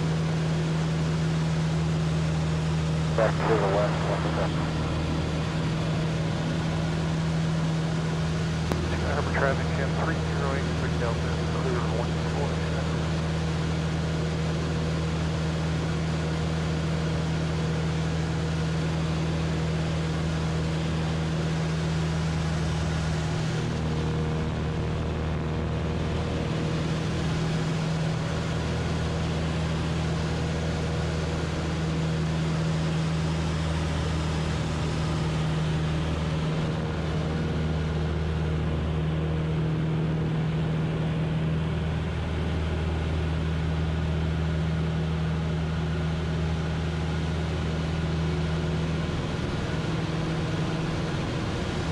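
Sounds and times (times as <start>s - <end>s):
propeller aircraft engine droning: 0.0s - 51.9s
steady rush of noise: 3.0s - 13.2s.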